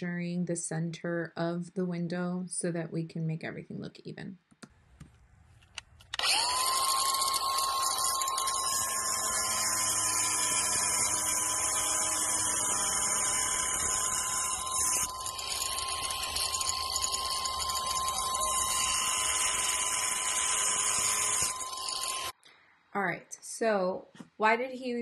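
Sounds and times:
angle grinder cutting tile: 6.2 - 22.4.

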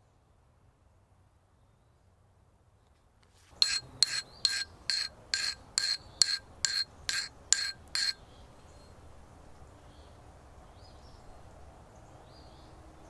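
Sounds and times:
file scraping steel: 3.5 - 8.2.

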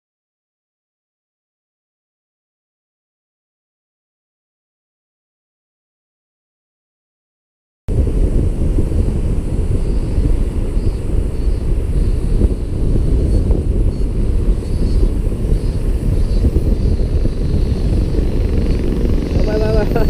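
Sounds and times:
wind buffeting microphone: 7.9 - 20.0.

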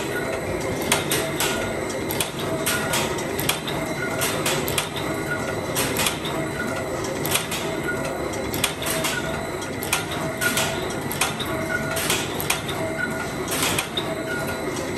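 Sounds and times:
sharp mechanical clicks and clacks: 0.0 - 14.9
steady machine hum: 0.0 - 14.9.

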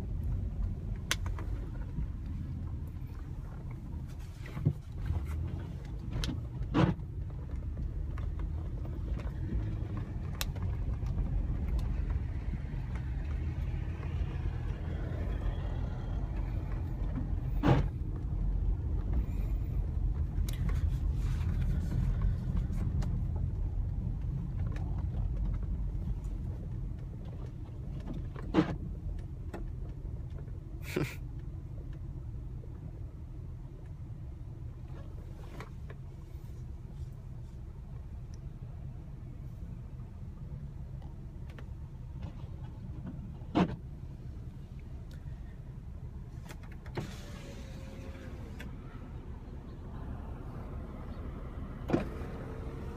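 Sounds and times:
car engine and road rumble: 0.0 - 52.9.

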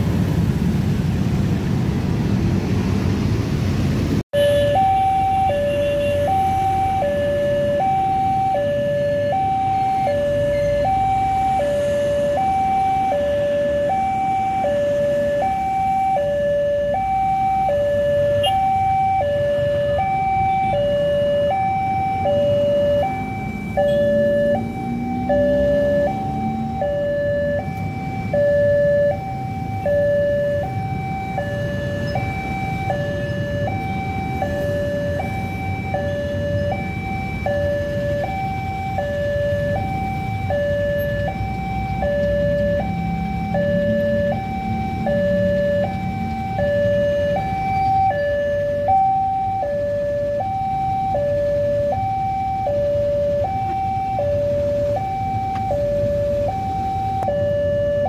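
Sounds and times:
two-tone crossing alarm: 4.3 - 58.0.

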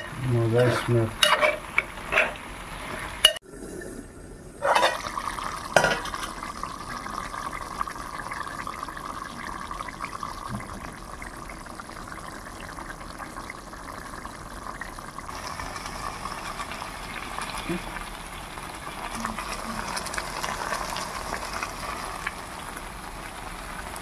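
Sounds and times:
curry bubbling and hissing: 0.0 - 24.0.

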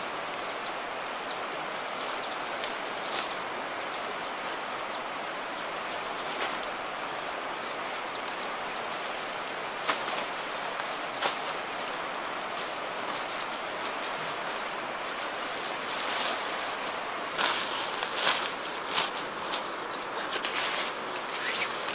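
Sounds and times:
nylon tarp rustling: 6.2 - 21.9.

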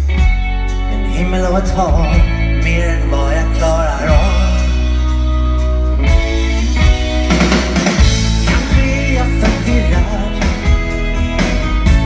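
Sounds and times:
live rock band playing: 0.0 - 12.0
person singing: 0.8 - 5.2, 8.4 - 11.2
drum kit hits: 6.2 - 12.0.

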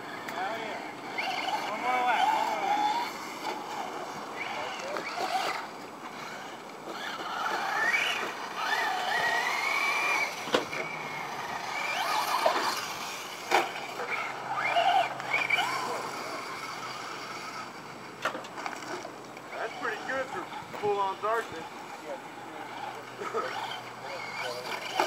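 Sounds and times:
electric toy truck motor whining: 0.0 - 25.0.

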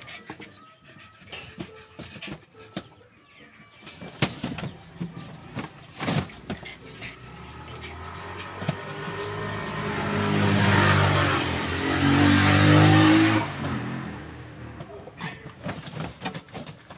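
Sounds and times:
vehicle engine passing by: 6.3 - 14.8.

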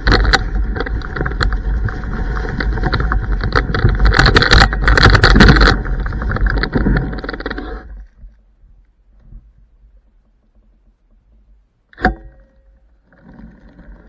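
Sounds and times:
knocks and rattles: 0.0 - 7.5
scooter tyre rolling on dirt track: 0.0 - 8.6.

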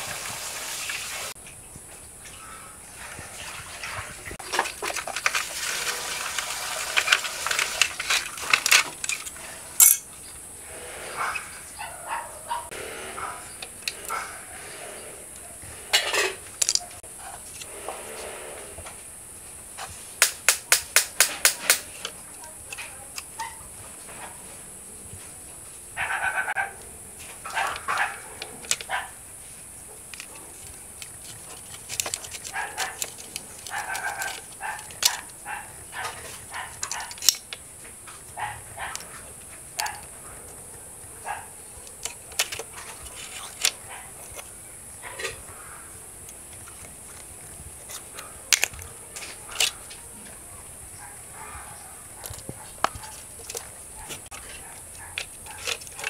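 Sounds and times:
plastic toy parts clicking: 7.6 - 10.0, 16.6 - 16.9, 27.6 - 28.9, 30.1 - 35.4, 36.2 - 37.6, 39.7 - 40.1, 41.8 - 44.5, 46.2 - 50.0, 52.2 - 56.0.

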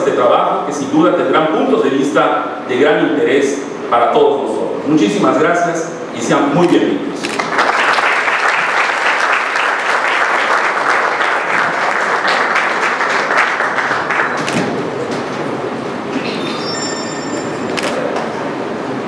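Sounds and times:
steady room noise: 0.0 - 19.0
audience applauding: 7.2 - 15.1
faint high tones: 16.1 - 18.0.

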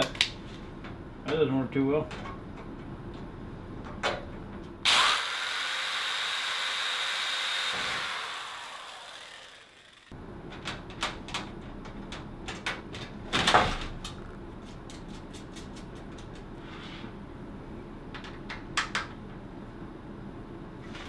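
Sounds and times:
electric drill on sheet metal: 4.8 - 10.2.

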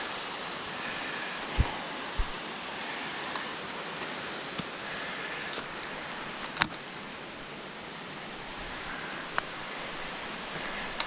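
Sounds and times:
mountain stream rushing: 0.0 - 11.0
footsteps on rocky path: 1.5 - 2.4.

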